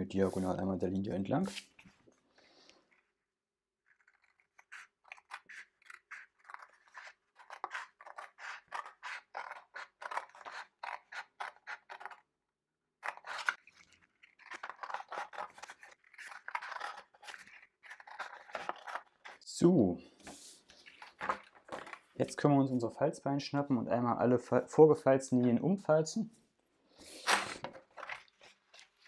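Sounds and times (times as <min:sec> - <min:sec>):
scissors snipping cardstock: 0:03.9 - 0:12.2, 0:13.0 - 0:19.4.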